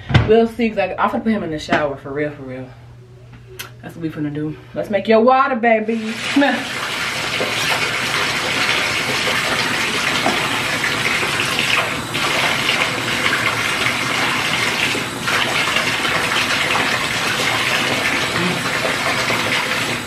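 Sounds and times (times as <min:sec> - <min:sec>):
water running into bathtub: 0:05.8 - 0:20.0.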